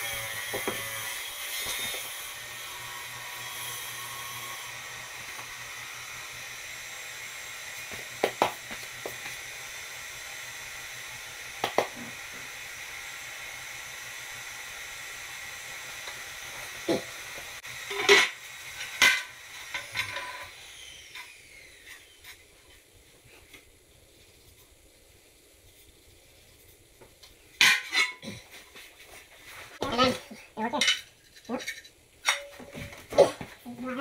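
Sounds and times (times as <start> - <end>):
steady hiss: 3.5 - 33.7.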